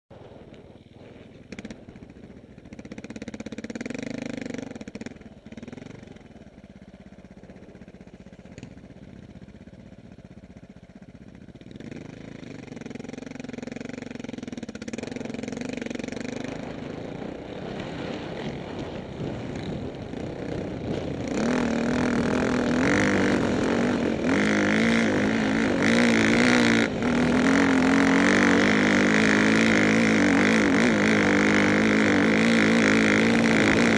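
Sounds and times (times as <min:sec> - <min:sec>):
dirt bike engines revving: 0:11.6 - 0:33.9.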